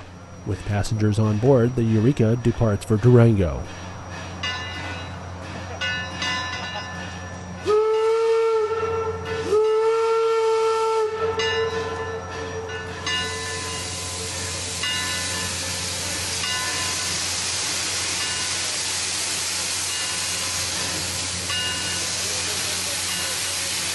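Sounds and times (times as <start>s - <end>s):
steam whistle blasts: 7.6s - 12.7s
steam hissing: 11.7s - 23.9s.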